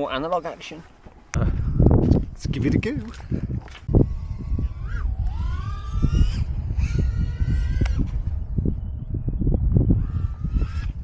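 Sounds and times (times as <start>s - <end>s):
wind buffeting microphone: 1.2s - 11.0s
distant drone motors whining: 3.9s - 11.0s.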